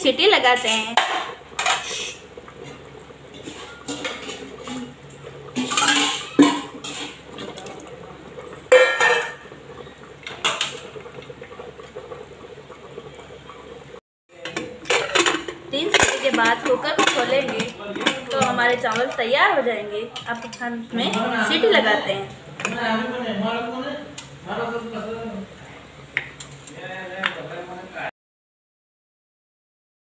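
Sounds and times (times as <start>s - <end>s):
utensils clanking on pressure cooker: 0.4s - 7.8s, 8.4s - 11.1s, 14.3s - 21.8s.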